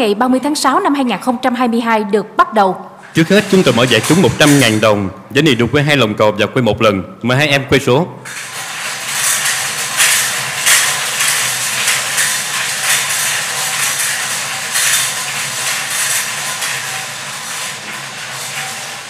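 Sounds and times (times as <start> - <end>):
lottery balls clattering in drums: 3.0 - 5.7, 8.2 - 19.0.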